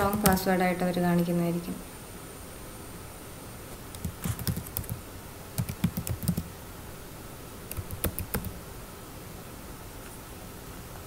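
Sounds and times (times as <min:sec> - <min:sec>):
typing on keyboard: 0:00.0 - 0:00.4, 0:03.9 - 0:05.0, 0:05.6 - 0:06.5, 0:07.7 - 0:08.6.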